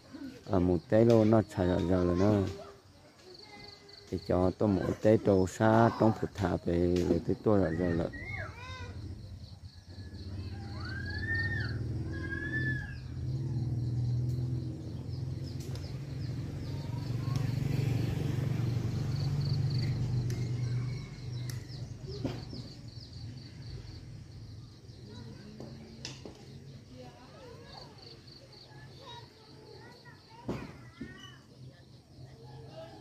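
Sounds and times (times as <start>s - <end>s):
high insect trill: 0.0s - 33.0s
bird chirps: 9.4s - 18.2s.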